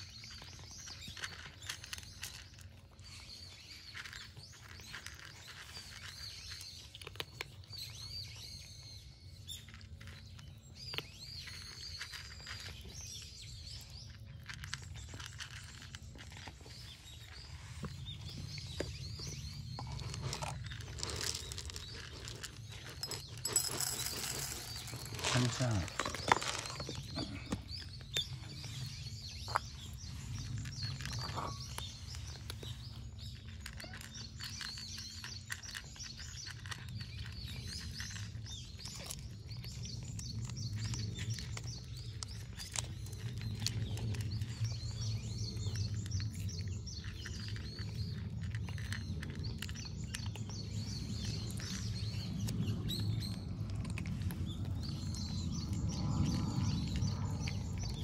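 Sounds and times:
small birds chirping: 0.0s - 58.0s
low background rumble: 7.6s - 58.0s.

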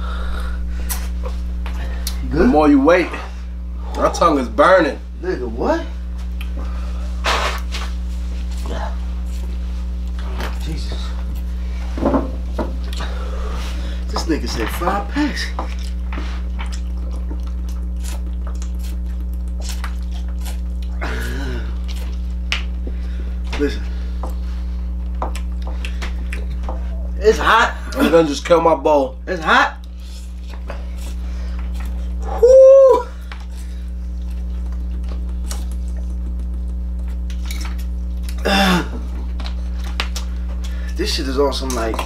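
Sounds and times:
low electrical hum: 0.0s - 42.0s
groan-like vocal sound: 38.4s - 39.0s.

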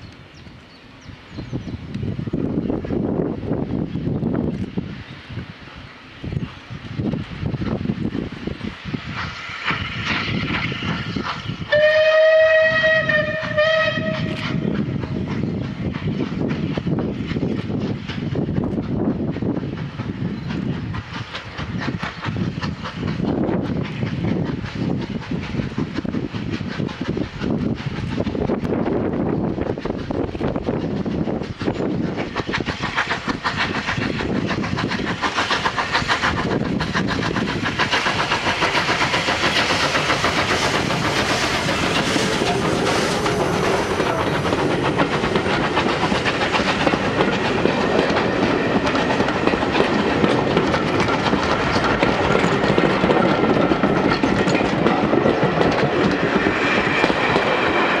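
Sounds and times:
steam locomotive exhaust beats: 0.0s - 58.0s
wheels clicking over rail joints: 29.7s - 58.0s.

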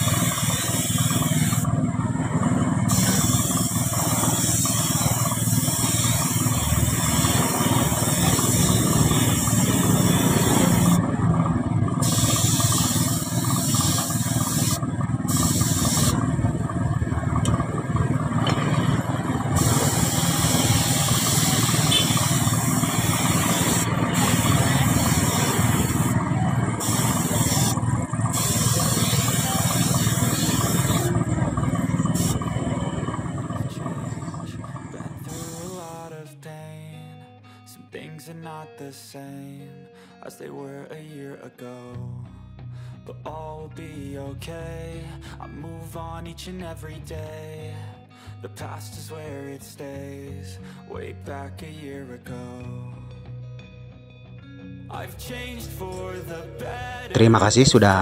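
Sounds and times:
spray gun hissing: 0.0s - 1.7s, 2.9s - 11.0s, 12.0s - 16.2s, 19.5s - 32.8s, 35.3s - 35.8s
steady low rumble: 5.0s - 35.6s.

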